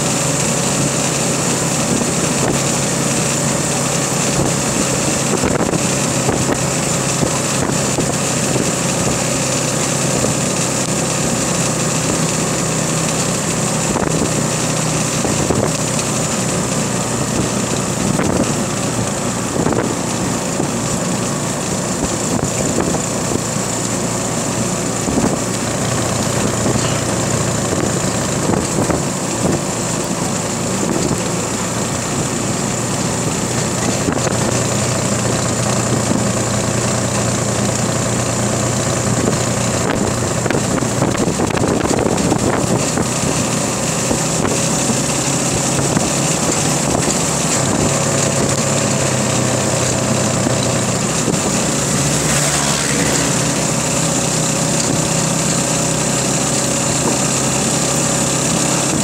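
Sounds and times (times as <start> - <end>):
motorcycle engine running: 0.0 - 59.0
wind on microphone: 16.9 - 20.9, 39.2 - 49.6.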